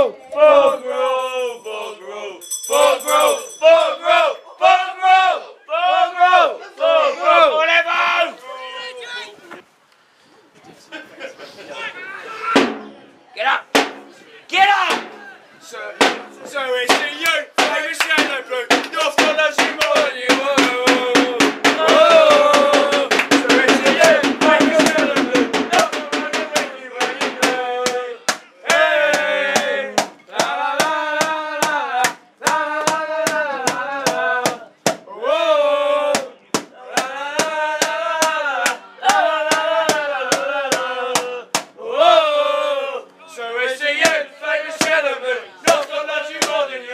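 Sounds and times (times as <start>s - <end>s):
steady drum beat: 12.6s - 13.1s, 13.7s - 35.1s, 36.1s - 41.8s
person singing: 19.0s - 46.9s.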